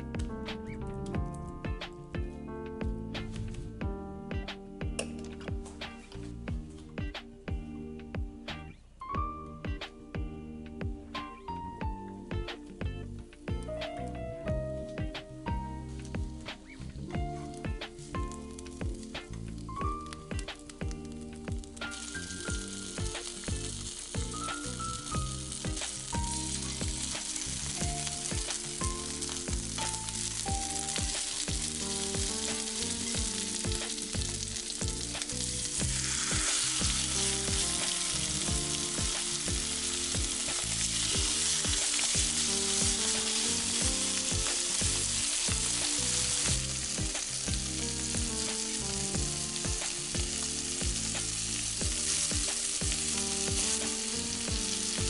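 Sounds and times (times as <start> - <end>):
vegetables sizzling in a frying pan: 14.8 - 55.0
chicken sizzling in a pan: 15.1 - 55.0.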